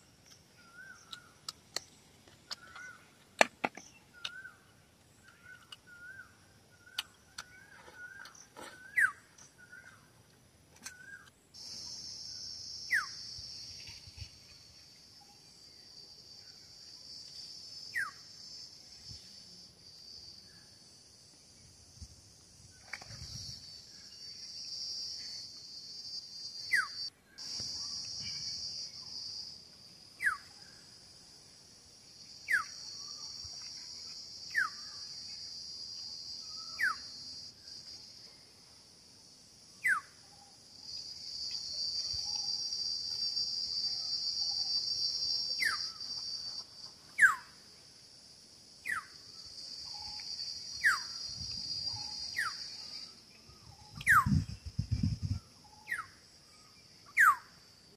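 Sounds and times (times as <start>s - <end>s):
high insect buzz: 11.6s - 57.9s.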